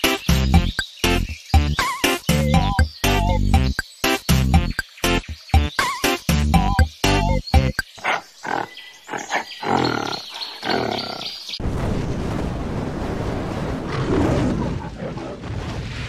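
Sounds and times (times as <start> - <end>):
big cat roar: 8.0 - 11.4, 13.8 - 15.8
rush of fiery noise: 11.6 - 16.0.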